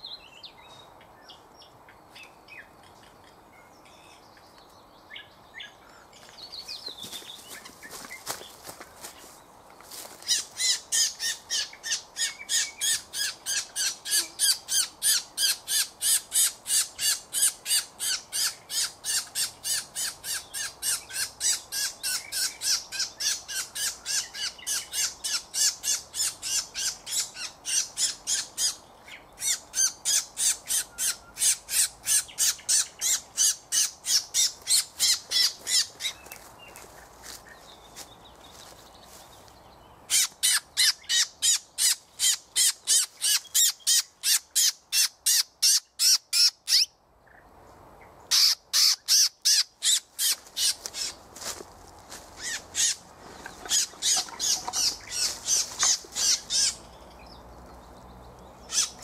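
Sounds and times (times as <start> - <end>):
sharp high squeaky calls: 10.2 - 28.8, 29.4 - 36.3, 40.1 - 46.9, 48.3 - 51.2, 52.3 - 56.9, 58.6 - 59.0.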